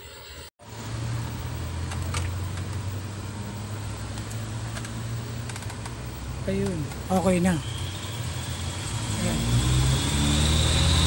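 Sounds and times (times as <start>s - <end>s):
steady low hum: 0.6s - 11.0s
hiss: 7.6s - 11.0s.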